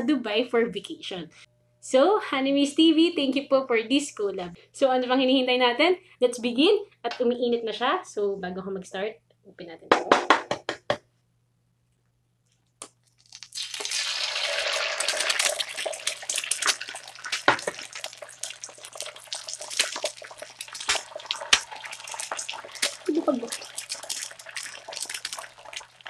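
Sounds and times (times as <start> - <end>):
eggs sizzling on grill: 13.2 - 26.0.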